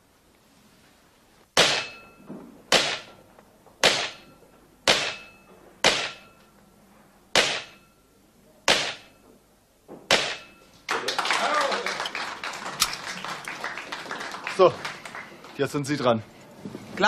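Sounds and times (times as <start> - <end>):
pistol shots echoing indoors: 1.6 - 3.2, 3.8 - 6.4, 7.3 - 8.0, 8.7 - 9.2, 10.1 - 10.6.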